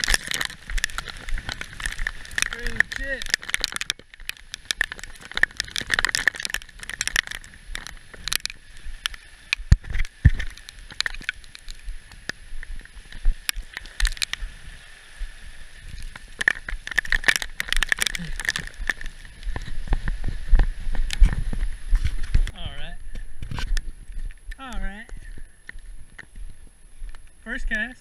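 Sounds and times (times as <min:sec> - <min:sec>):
crackle of short clicks: 0:00.0 - 0:12.4, 0:13.1 - 0:14.4, 0:15.9 - 0:19.7
rain hiss: 0:00.0 - 0:28.0
wind gusting on microphone: 0:14.4 - 0:27.2.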